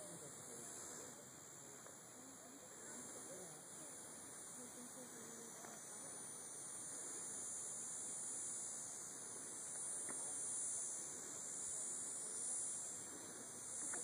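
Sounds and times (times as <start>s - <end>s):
insects buzzing: 0.0s - 14.0s
faint click: 9.7s - 10.3s.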